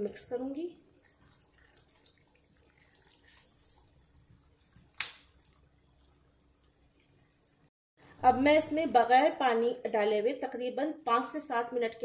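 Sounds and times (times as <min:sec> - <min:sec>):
spatula scraping and squelching in curry: 0:00.9 - 0:04.9.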